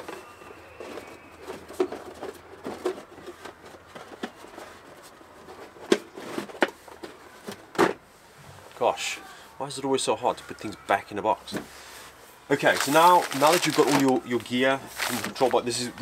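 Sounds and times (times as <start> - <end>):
packaging rustling and scraping: 0.0 - 7.6, 12.5 - 16.0.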